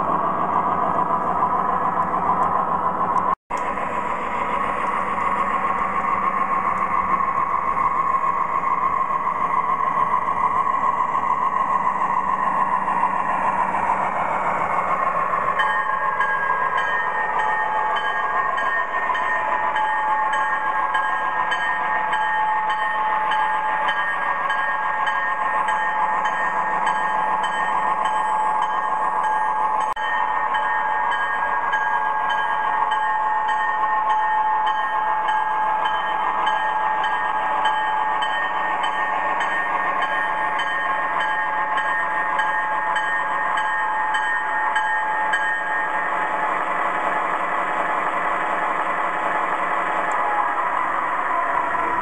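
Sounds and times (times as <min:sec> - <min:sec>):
model diesel engine sounds: 0:00.0 - 0:52.0
locomotive bell ringing: 0:04.5 - 0:47.3, 0:49.2 - 0:52.0.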